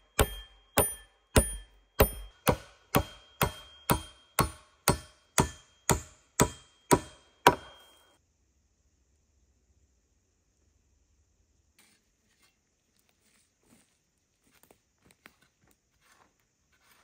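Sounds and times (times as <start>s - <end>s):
hand tool chopping wood: 0.0s - 8.0s.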